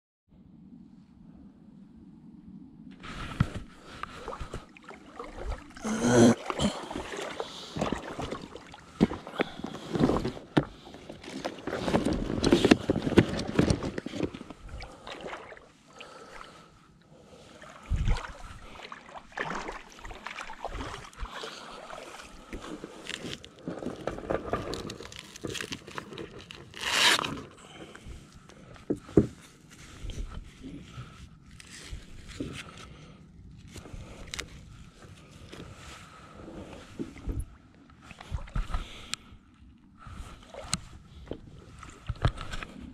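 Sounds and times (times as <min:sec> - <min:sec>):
fabric and straps rustling: 0:09.0 - 0:14.7, 0:22.1 - 0:27.6.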